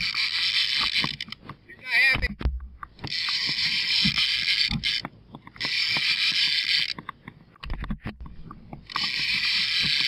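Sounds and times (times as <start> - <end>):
fishing reel ratcheting: 0.0 - 1.4, 3.0 - 7.0, 8.9 - 10.0
sharp clicks and knocks: 0.8 - 10.0.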